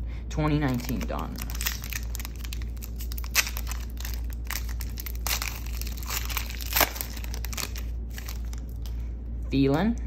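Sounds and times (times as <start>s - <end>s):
foil wrapper tearing and crinkling: 0.6s - 9.0s.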